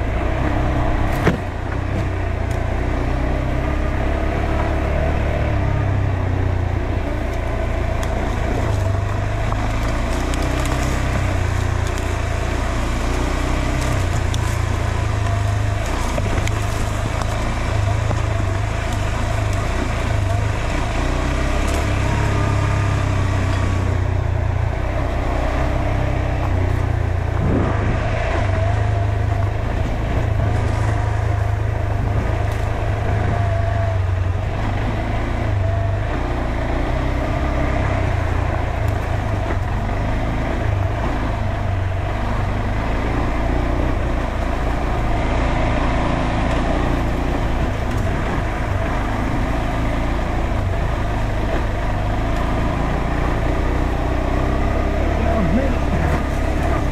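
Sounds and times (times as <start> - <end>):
motorcycle engine running: 0.0 - 56.9
tyre and chassis noise: 0.0 - 56.9.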